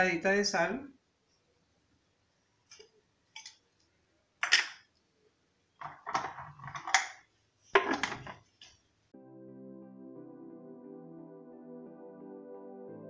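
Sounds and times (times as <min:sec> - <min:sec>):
jar set down on worktop: 0:07.8 - 0:08.4.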